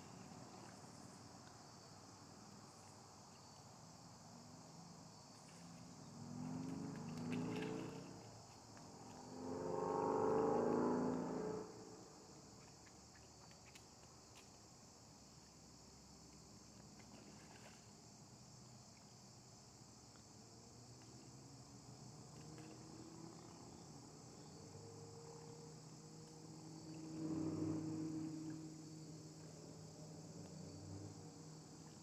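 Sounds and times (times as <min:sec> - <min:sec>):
insects chirring: 0:00.0 - 0:32.0
low drone: 0:08.9 - 0:12.4, 0:26.9 - 0:28.8.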